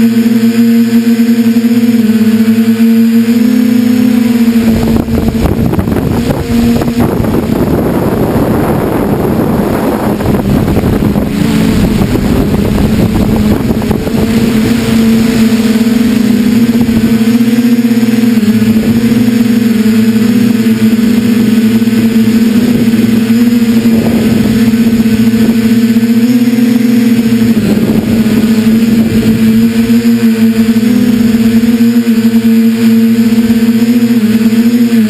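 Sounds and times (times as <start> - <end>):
drone propellers buzzing: 0.0 - 35.0
rough rushing wind noise: 0.0 - 35.0.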